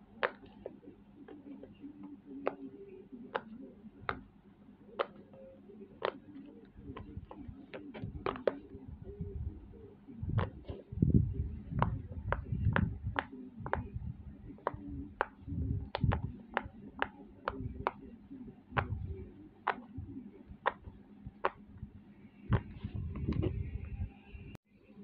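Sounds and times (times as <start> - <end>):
fidget toy bubbles popping: 6.9 - 8.7, 14.5 - 18.0
hand thudding on toy: 6.9 - 9.0, 22.5 - 23.6.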